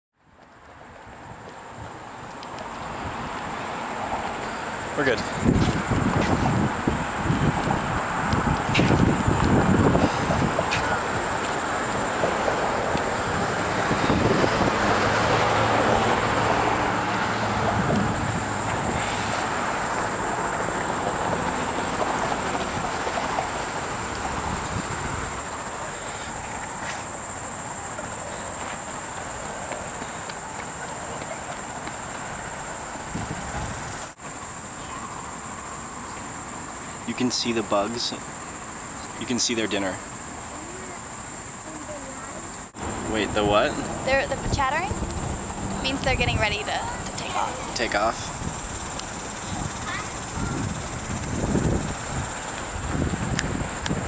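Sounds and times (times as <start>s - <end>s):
dull rushing noise: 2.7s - 34.1s, 42.4s - 54.0s
bat colony chattering: 45.8s - 51.0s.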